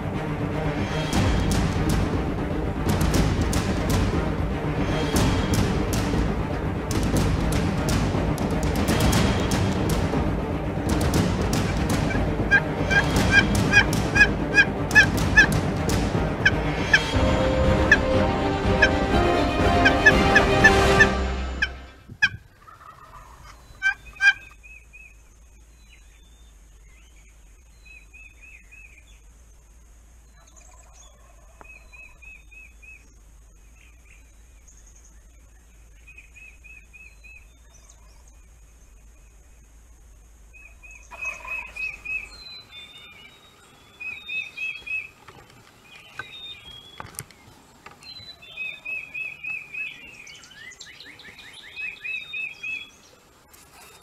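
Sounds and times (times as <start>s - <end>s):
songbirds chirping: 0.0s - 54.0s
turkey gobbling: 11.6s - 15.6s, 16.4s - 24.6s, 41.1s - 42.3s.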